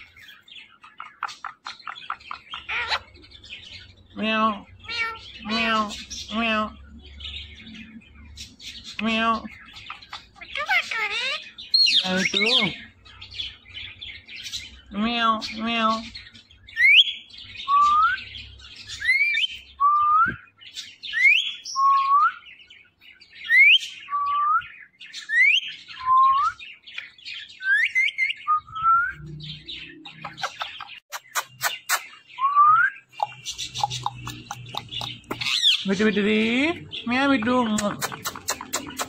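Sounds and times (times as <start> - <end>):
sharp clicks: 37.8 - 39.0.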